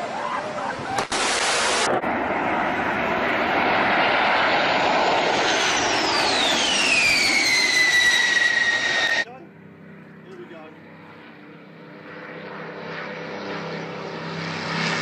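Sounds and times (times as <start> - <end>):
jet engines roaring: 0.0 - 15.0
high whine falling in pitch: 0.2 - 9.3.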